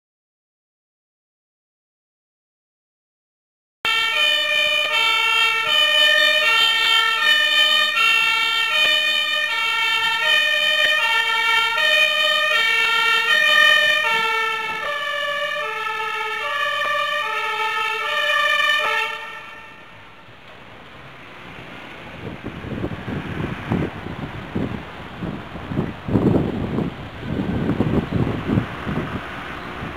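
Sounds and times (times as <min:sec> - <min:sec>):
two-tone fire engine siren: 0:03.8 - 0:20.2.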